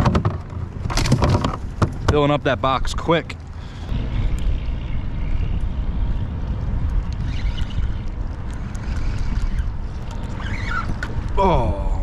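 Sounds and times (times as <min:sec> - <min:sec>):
wind buffeting microphone: 0:00.0 - 0:12.0
water lapping against hull: 0:07.2 - 0:11.6.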